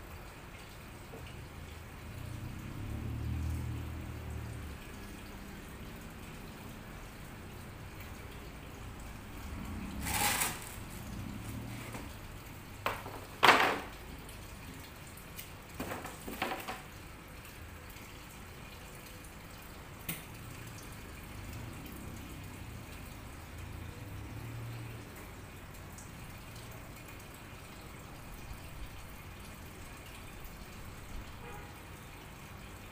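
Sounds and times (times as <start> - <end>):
water splashing in aquarium tank: 0.0 - 32.9.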